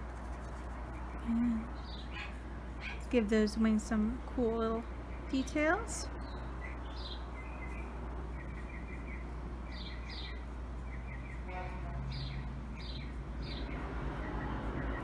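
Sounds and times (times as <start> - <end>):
marker scratching on paper: 0.0 - 1.3
steady low hum: 0.0 - 15.0.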